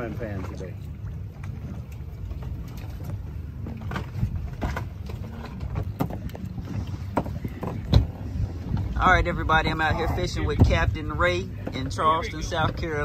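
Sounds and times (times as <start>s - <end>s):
water against boat: 0.0s - 13.0s
wind: 0.0s - 13.0s.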